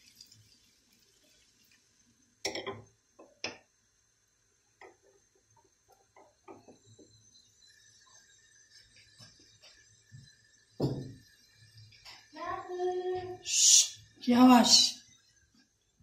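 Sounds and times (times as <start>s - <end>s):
hot fat crackling in frying pan: 0.0s - 3.8s.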